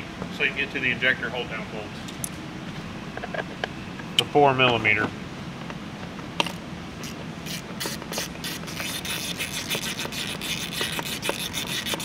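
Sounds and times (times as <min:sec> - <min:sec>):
hand ratchet clicking: 0:07.5 - 0:12.0.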